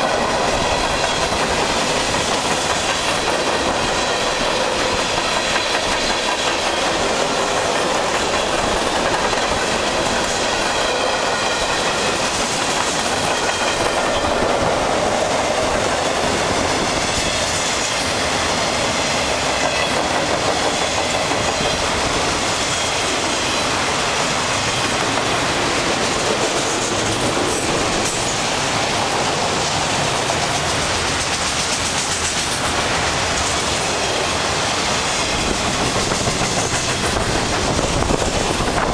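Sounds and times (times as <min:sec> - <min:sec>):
freight train wheels rolling on rails: 0:00.0 - 0:38.9.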